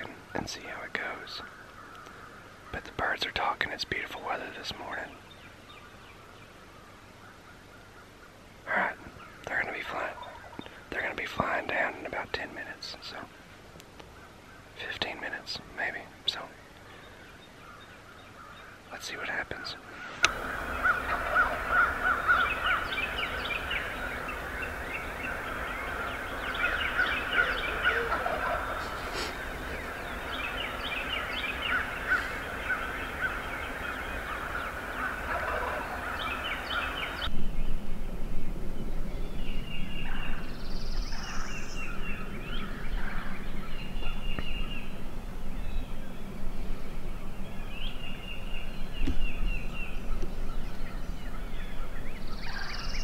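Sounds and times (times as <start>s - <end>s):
birds calling: 0.0s - 37.3s, 39.1s - 53.0s
distant turkeys gobbling: 20.3s - 37.2s.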